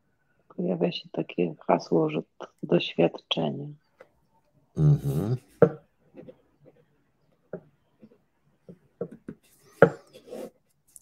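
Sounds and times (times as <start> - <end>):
murmured vocal sound: 4.8 - 5.6.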